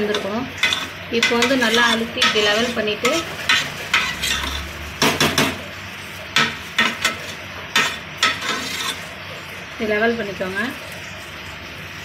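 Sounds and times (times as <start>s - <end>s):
metal spoon scraping and knocking pot: 0.0s - 5.6s, 6.4s - 9.1s.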